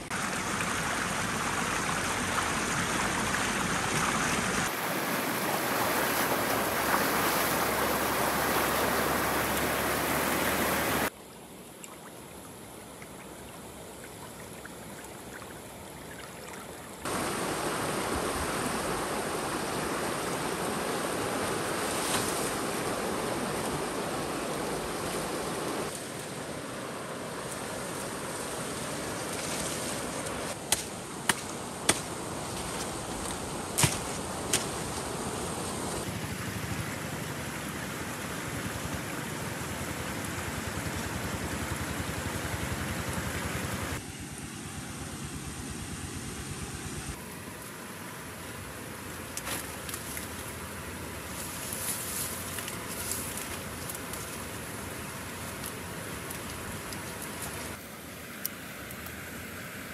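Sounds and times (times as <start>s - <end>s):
steady outdoor rushing noise: 17.0s - 47.4s.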